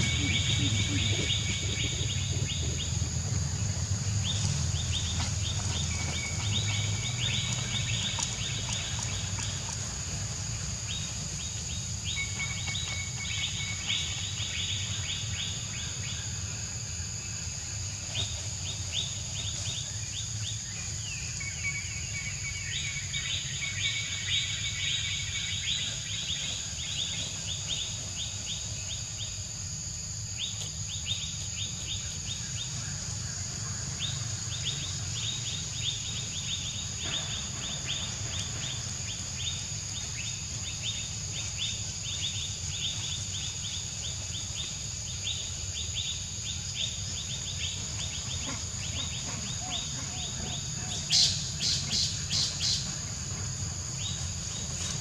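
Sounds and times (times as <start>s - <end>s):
low rumble: 0.0s - 5.8s.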